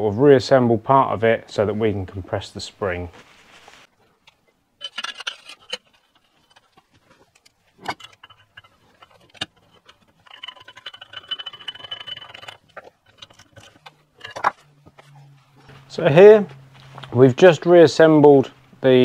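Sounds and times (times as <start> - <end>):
metal parts clicking and clinking: 4.2 - 15.2
metal parts scraping: 4.2 - 15.7.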